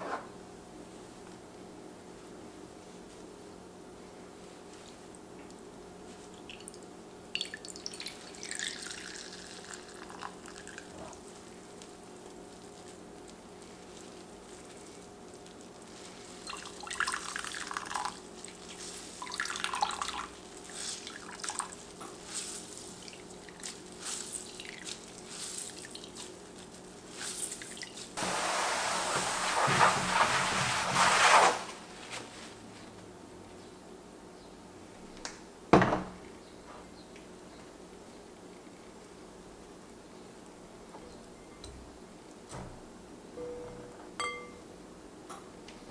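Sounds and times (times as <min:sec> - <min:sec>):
juice dripping into a bowl: 0:06.3 - 0:28.2.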